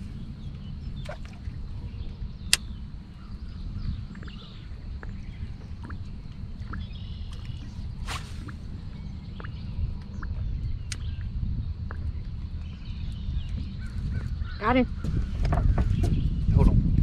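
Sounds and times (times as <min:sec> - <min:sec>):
wind and water rumble: 0:00.0 - 0:17.0.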